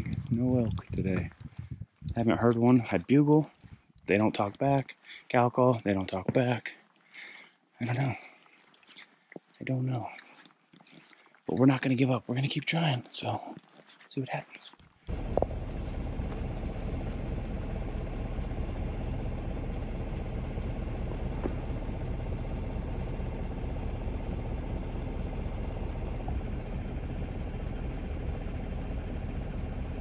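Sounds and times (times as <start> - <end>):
truck engine idling: 15.1 - 30.0.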